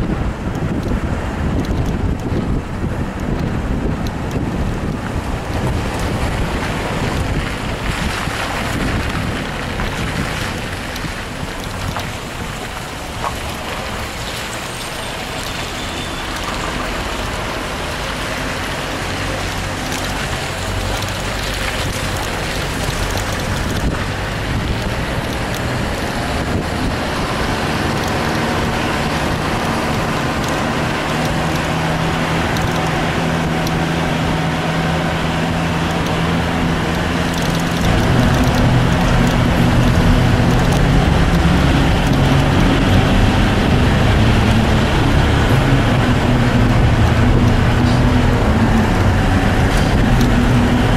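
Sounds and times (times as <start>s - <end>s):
vehicle engine and road noise: 0.0s - 50.9s.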